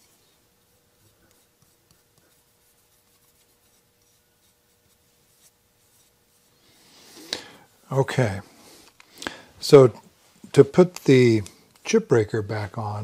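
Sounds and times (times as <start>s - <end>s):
fingertips rubbing on steel: 0.7s - 8.0s.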